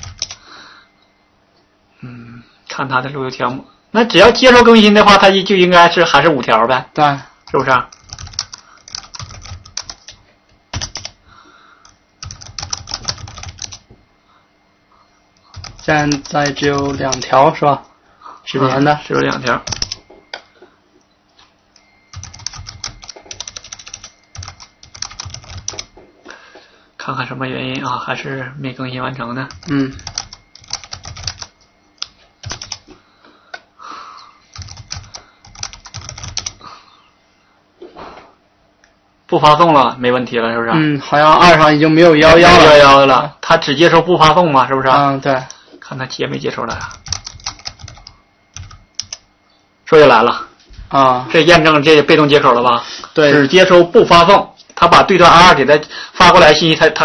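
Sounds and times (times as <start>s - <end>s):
computer keyboard typing: 0.0s - 0.4s, 7.4s - 11.2s, 11.8s - 13.8s, 15.4s - 17.4s, 18.7s - 20.1s, 21.8s - 26.0s, 29.5s - 32.9s, 34.5s - 36.6s, 46.7s - 49.3s.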